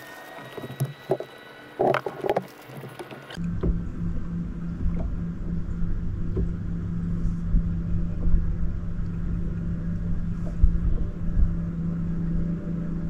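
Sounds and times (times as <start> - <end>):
electric motor humming: 0.0 - 13.0
wind on microphone: 2.9 - 13.0.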